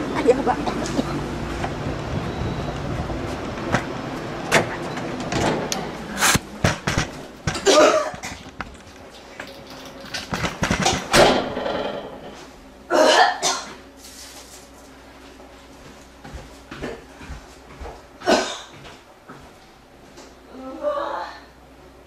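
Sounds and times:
construction machinery engine hum: 0.0 - 12.9
door and window knocks: 10.3 - 12.2.

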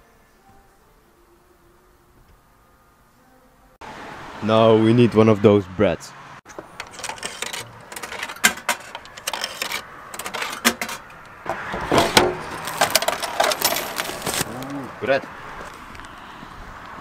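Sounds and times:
vending machine mechanism clunking: 6.5 - 14.5
coins going into slot: 6.7 - 11.2, 12.5 - 14.4.

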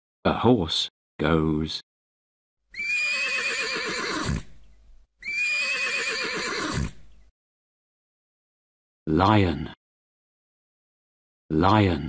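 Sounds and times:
horse neighing: 2.7 - 4.6, 5.2 - 7.1.

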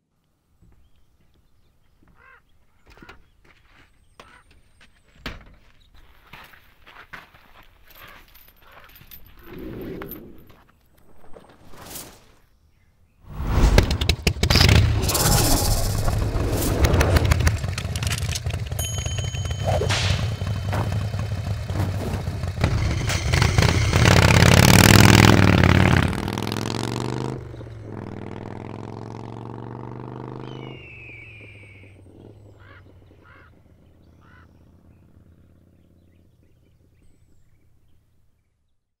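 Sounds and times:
motorcycle engine revving: 13.4 - 37.2.

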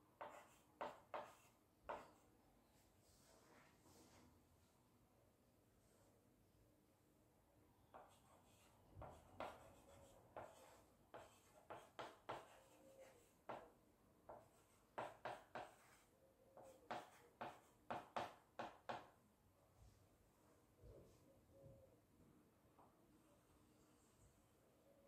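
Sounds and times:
chalk writing on blackboard: 0.2 - 2.2, 8.0 - 13.7, 14.3 - 19.1.

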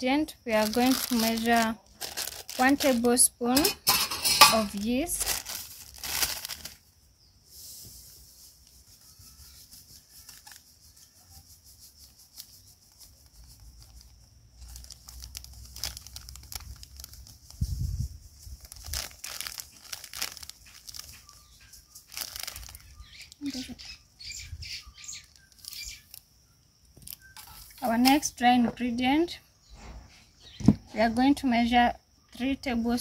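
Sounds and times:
plastic sachet crinkling: 0.4 - 6.9, 9.0 - 11.2, 12.0 - 24.0, 24.9 - 26.3, 27.0 - 28.3.

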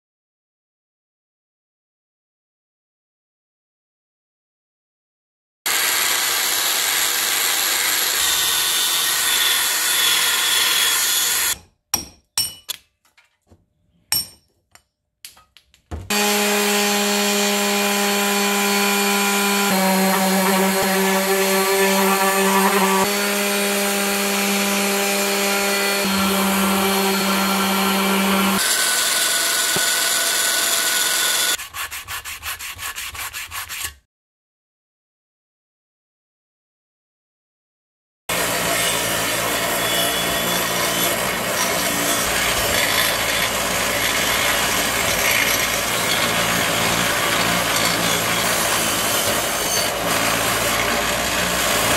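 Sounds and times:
orbital sander running: 5.7 - 11.6, 16.1 - 31.6
sandpaper rubbed on metal: 31.6 - 34.0.

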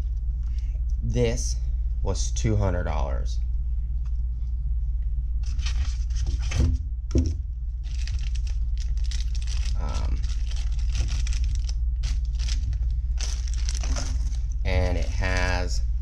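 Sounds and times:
steady low hum: 0.0 - 16.0
recorder knocking on styrofoam tray: 6.6 - 7.4
plastic bags crinkling: 7.8 - 15.7.

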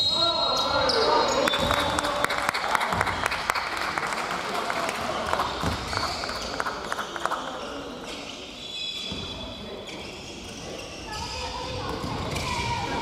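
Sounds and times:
sneakers squeaking on floor: 0.0 - 2.0, 5.5 - 6.8, 7.6 - 13.0
people clapping: 1.5 - 7.8.

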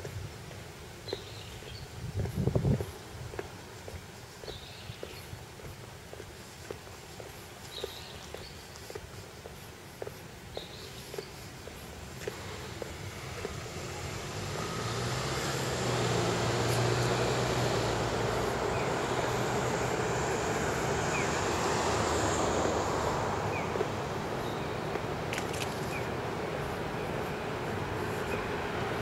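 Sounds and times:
background traffic: 0.0 - 29.0
vehicle passing: 11.0 - 29.0.

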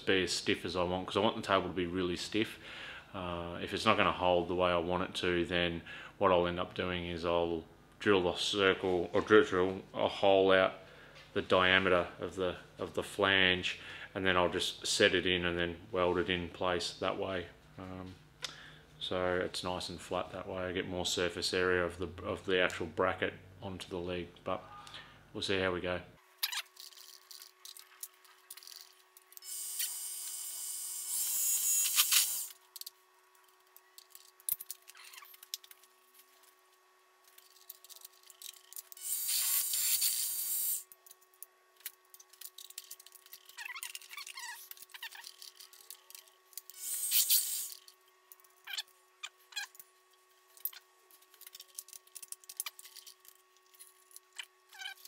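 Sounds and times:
faint steady hum: 0.0 - 55.0
drill cutting steel: 29.4 - 32.6, 39.0 - 40.9, 46.7 - 47.8.

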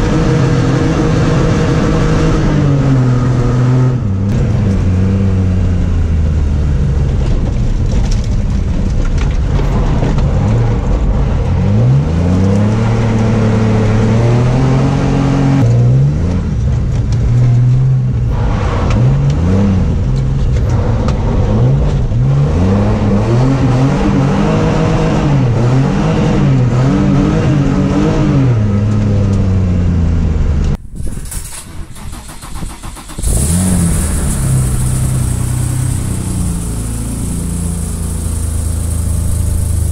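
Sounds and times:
car engine revving hard: 0.0 - 6.6, 11.5 - 16.4, 17.8 - 30.2, 32.0 - 39.9.

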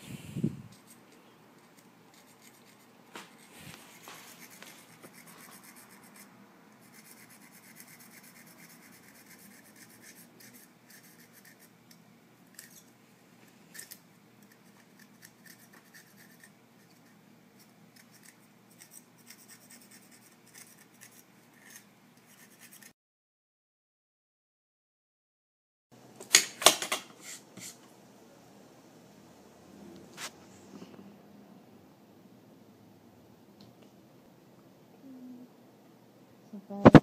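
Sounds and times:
scissors scraping thin wire: 0.7 - 12.9, 13.7 - 17.1, 17.9 - 22.9.

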